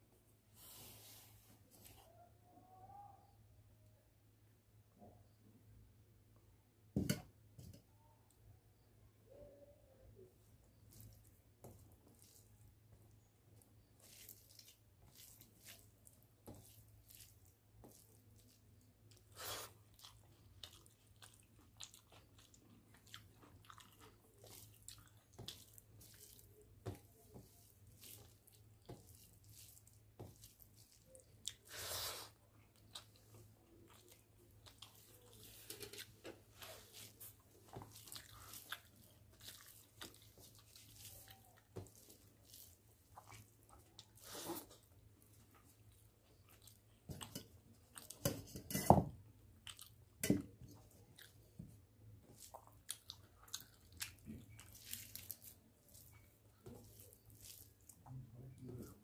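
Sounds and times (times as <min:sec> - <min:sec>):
fingers mixing food on steel plate: 0:10.8 - 0:19.3, 0:20.0 - 0:31.7, 0:32.7 - 0:44.2, 0:50.2 - 0:59.0.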